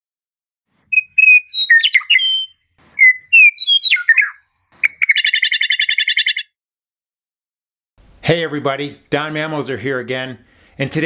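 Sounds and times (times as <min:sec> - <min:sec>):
songbird singing: 0:00.9 - 0:06.5.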